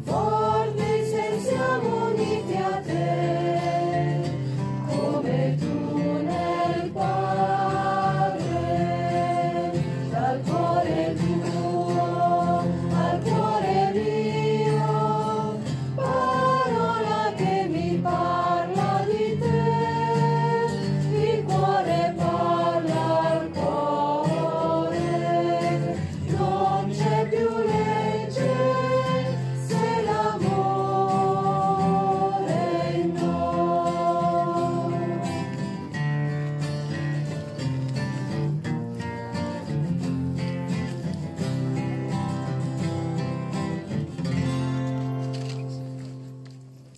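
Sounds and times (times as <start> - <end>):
choir singing slow song: 0.0 - 36.2.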